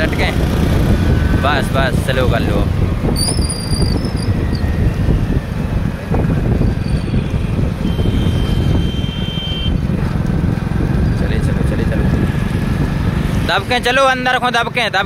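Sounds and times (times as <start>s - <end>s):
wind buffeting microphone: 0.0s - 13.6s
vehicle rumble: 0.0s - 15.0s.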